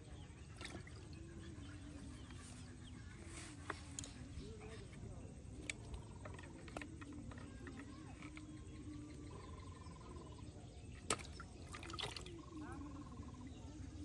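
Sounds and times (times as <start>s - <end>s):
frogs trilling: 5.4s - 14.0s
low pulsing frog call: 8.9s - 10.6s, 12.2s - 13.8s.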